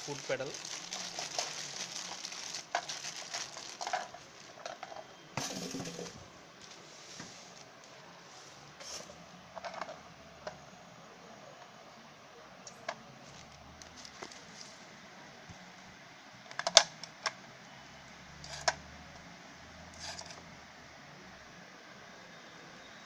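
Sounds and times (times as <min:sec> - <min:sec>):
plastic bag crinkling: 0:00.0 - 0:06.8, 0:13.3 - 0:14.6.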